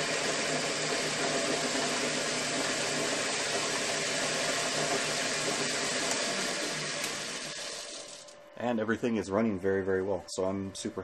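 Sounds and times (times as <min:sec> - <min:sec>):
metal lathe running with mechanical whir: 0:00.0 - 0:08.4.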